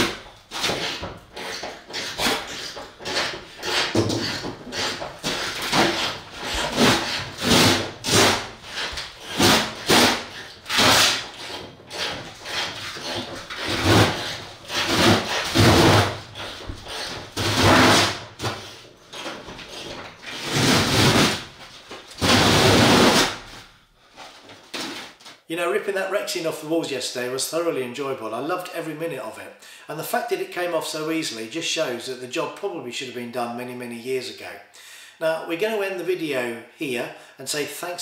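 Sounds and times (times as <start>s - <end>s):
wall covering being torn off: 0.0s - 23.7s, 24.4s - 25.4s.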